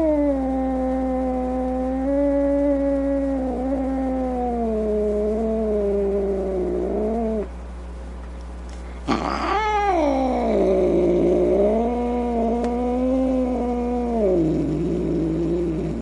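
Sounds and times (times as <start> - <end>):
cat snarling: 0.0 - 7.5, 9.0 - 16.0
cat yowling: 9.1 - 16.0.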